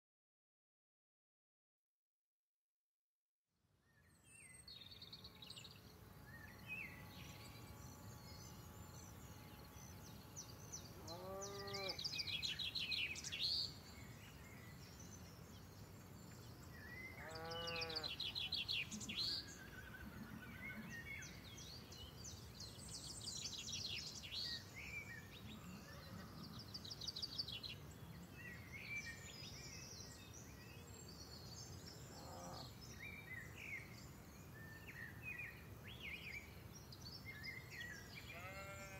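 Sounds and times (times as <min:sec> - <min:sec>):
low outdoor hiss: 0:03.7 - 0:38.9
small birds trilling: 0:04.5 - 0:28.6, 0:30.0 - 0:33.4, 0:36.9 - 0:38.9
farm animal bleating: 0:11.0 - 0:12.0, 0:17.2 - 0:18.1, 0:38.3 - 0:38.9.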